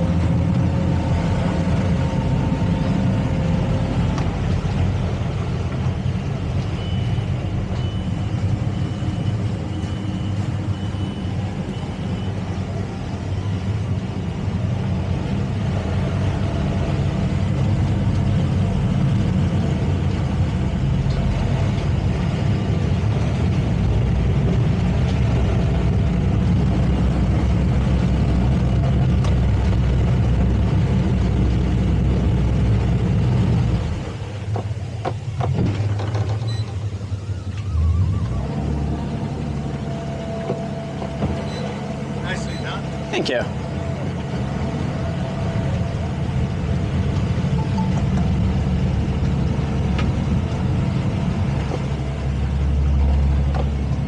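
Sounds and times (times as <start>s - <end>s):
boat engines running: 0.0s - 54.0s.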